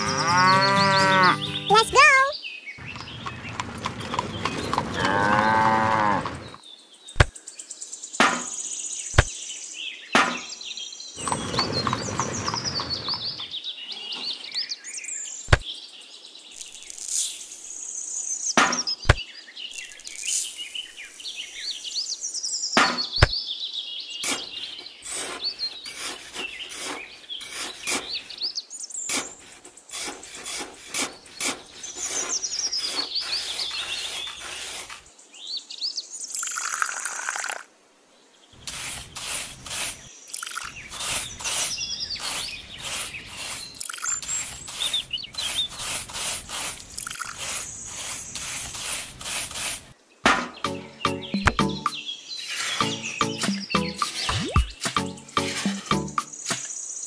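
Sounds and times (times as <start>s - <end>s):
cow mooing: 0.0s - 1.5s, 4.9s - 6.4s
birds chirping: 0.0s - 17.0s, 17.7s - 36.9s, 38.2s - 57.0s.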